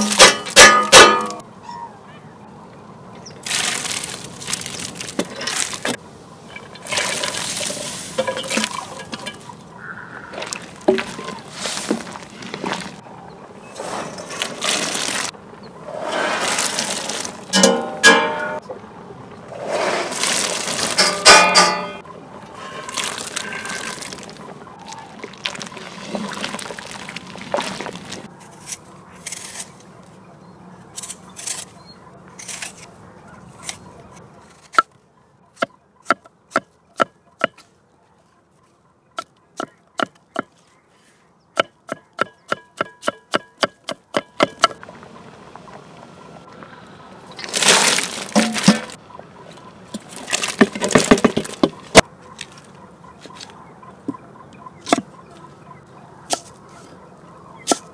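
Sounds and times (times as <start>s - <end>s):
food handling noises: 3.4s - 13.0s, 13.8s - 15.4s, 16.1s - 18.6s, 19.8s - 30.2s, 47.3s - 53.6s
sharp evenly spaced knocks: 41.6s - 44.8s.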